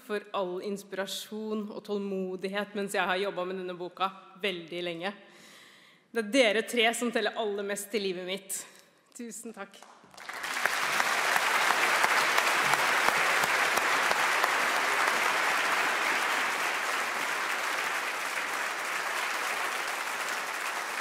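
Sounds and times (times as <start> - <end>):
audience applauding: 10.0 - 21.0.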